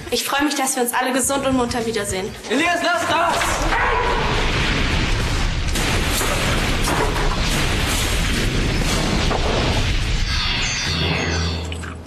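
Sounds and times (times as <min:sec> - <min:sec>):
rumbling and crashing of cave-in: 0:03.0 - 0:12.0.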